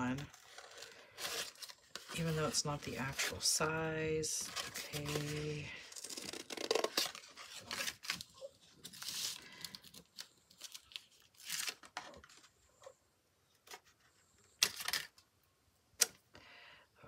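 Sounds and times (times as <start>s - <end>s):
cardboard box rustling: 0.1s - 3.4s, 4.4s - 12.5s.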